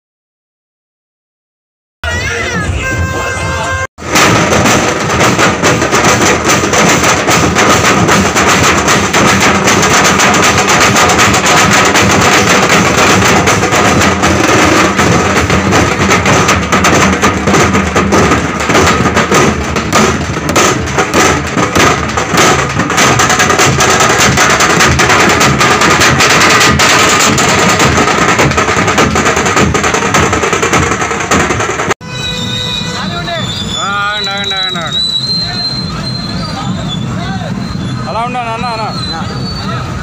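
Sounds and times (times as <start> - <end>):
loud music with dense drumming: 4.0 - 31.9.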